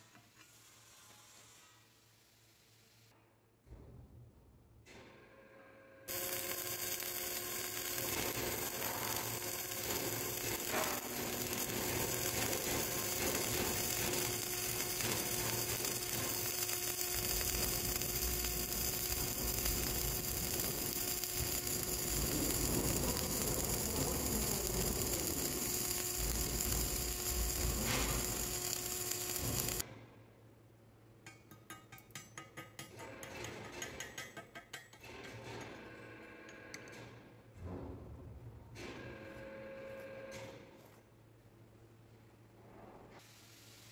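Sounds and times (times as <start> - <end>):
welding arc crackling: 6.1 - 29.8.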